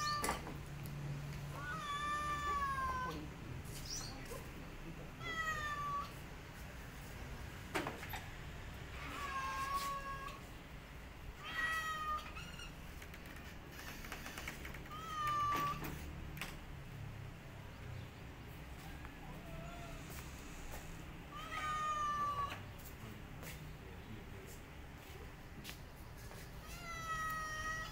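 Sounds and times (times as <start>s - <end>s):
cat meowing: 0.0s - 0.5s, 1.5s - 3.3s, 5.2s - 6.2s, 8.9s - 10.5s, 11.4s - 12.8s, 14.8s - 16.0s, 18.8s - 20.2s, 20.8s - 22.7s, 26.6s - 27.9s.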